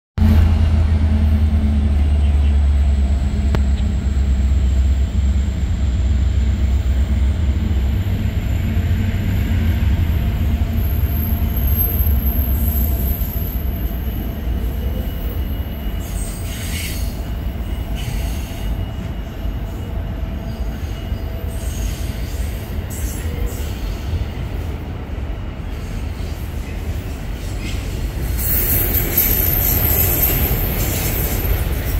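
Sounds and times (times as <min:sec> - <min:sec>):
train cars rolling past: 0:00.2 - 0:31.9
high wheel squeal: 0:10.0 - 0:24.2, 0:27.3 - 0:31.9.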